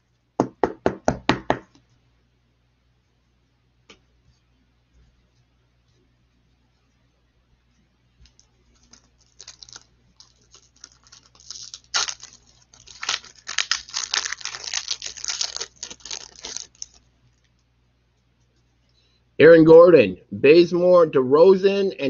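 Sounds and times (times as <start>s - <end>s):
foil wrapper crinkling: 8.2s - 17.6s.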